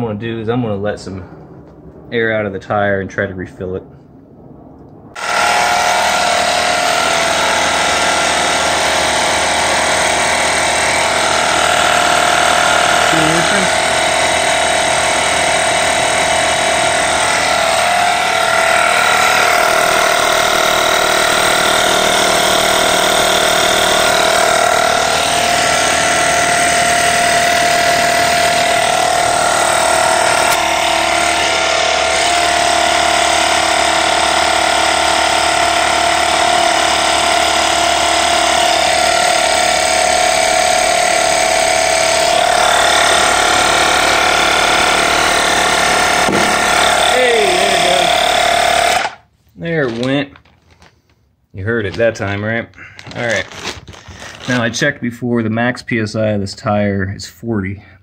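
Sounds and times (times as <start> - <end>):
air compressor running: 5.2 - 49.4, 52.8 - 54.8.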